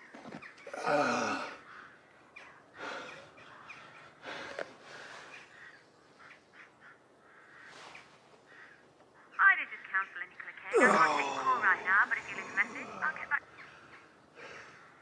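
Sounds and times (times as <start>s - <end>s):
man breathing heavily in pain: 0.7s - 5.8s, 12.2s - 15.0s.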